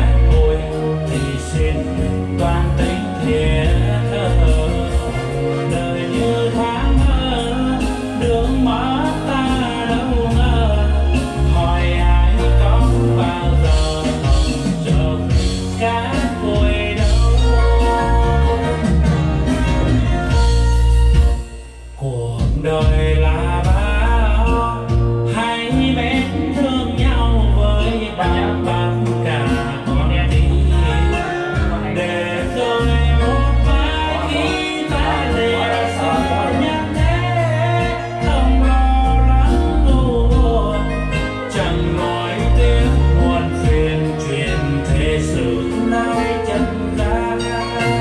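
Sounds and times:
song with singing and bass: 0.0 - 48.0.

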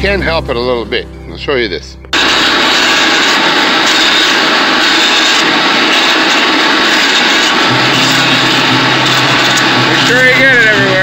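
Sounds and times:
low hum: 2.0 - 11.0
angle grinder sanding wood: 3.1 - 11.0.

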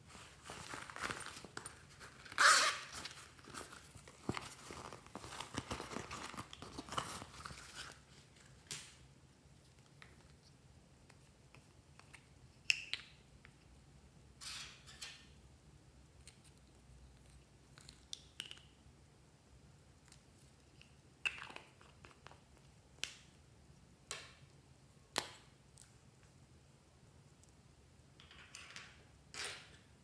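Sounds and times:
rustling and handling: 0.0 - 12.3
zipper pulled open: 2.2 - 3.0.

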